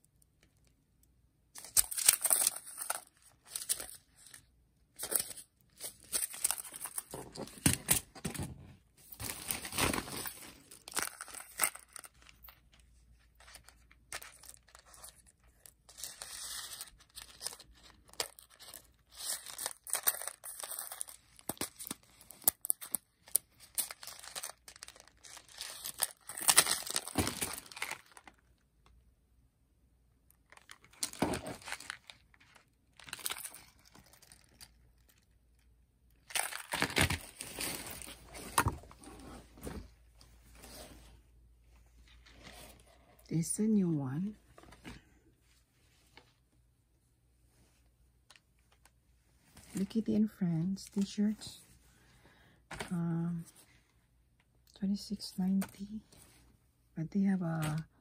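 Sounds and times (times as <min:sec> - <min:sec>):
paper crinkling and tearing: 0:01.6 - 0:04.4, 0:09.1 - 0:12.6, 0:13.3 - 0:28.4, 0:30.5 - 0:35.1, 0:36.3 - 0:38.7.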